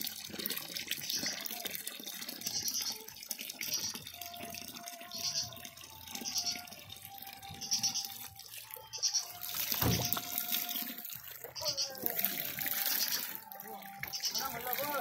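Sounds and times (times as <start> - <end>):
water splashing onto stone: 0.0 - 15.0.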